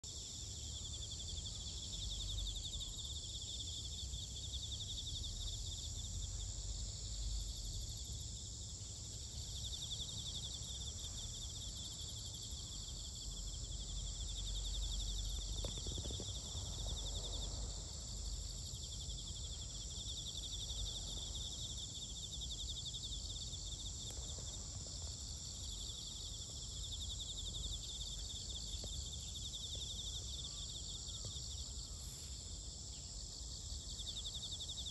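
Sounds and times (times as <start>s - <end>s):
insect trill: 0.0s - 34.9s
insects buzzing: 0.1s - 34.9s.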